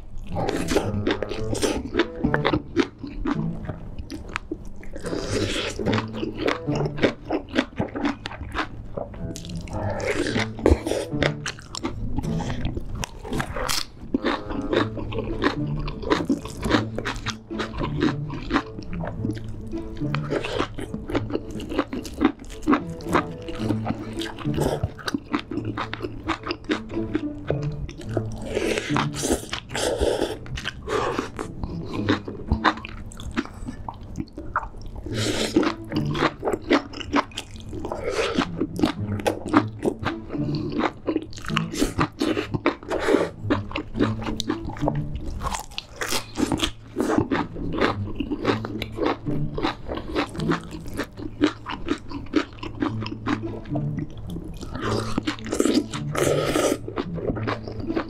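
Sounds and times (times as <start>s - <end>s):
person chewing and crunching: 0.0s - 58.0s
slurping noodles: 0.2s - 58.0s.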